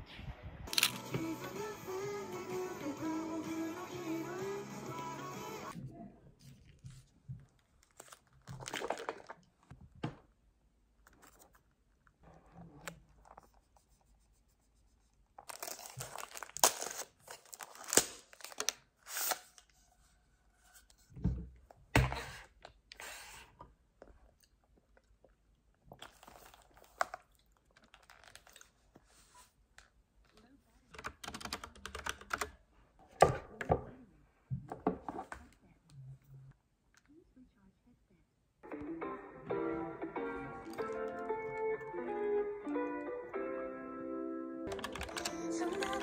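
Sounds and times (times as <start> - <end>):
wrapper tearing and crinkling: 15.4 - 19.7, 26.0 - 28.8.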